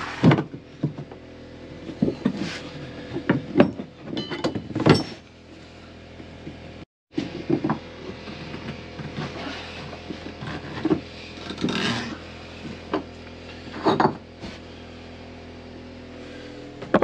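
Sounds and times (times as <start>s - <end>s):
steady low hum: 0.0s - 17.0s
metal clunks and scrapes: 1.8s - 5.3s, 6.4s - 14.6s.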